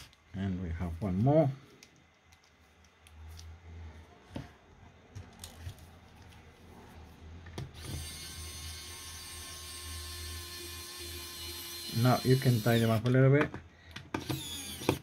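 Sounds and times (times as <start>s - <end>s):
electric screwdriver motor running: 7.8s - 12.9s, 14.2s - 15.0s.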